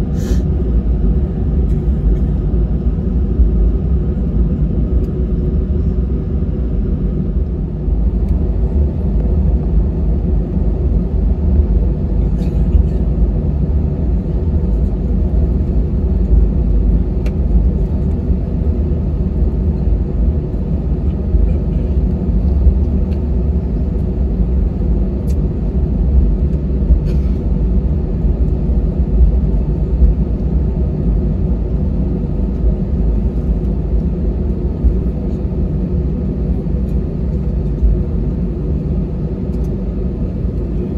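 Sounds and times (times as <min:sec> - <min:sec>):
aircraft engines idling rumble: 0:00.0 - 0:40.9.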